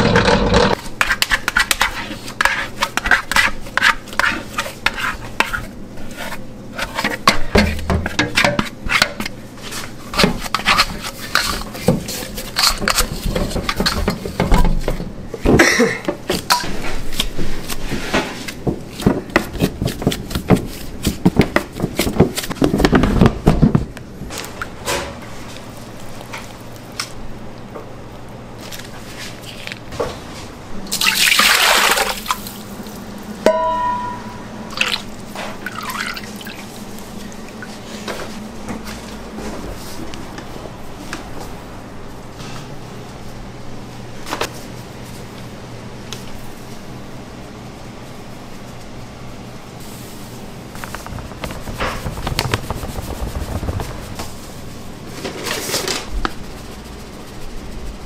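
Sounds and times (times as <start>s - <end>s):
utensils and trays clattering: 0.0s - 5.6s, 15.6s - 23.1s.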